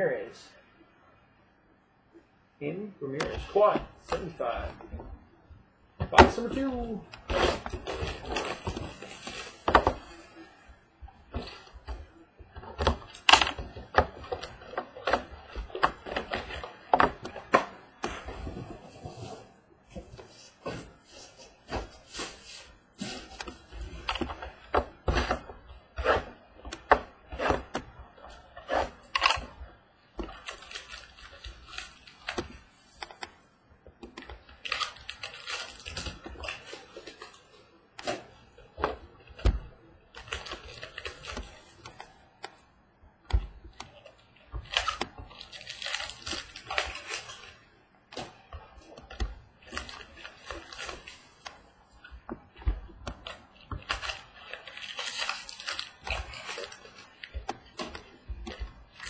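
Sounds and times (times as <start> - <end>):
foil wrappers crinkling: 6.2 - 10.6, 30.2 - 33.2, 34.4 - 38.2, 40.1 - 42.4, 43.8 - 59.0.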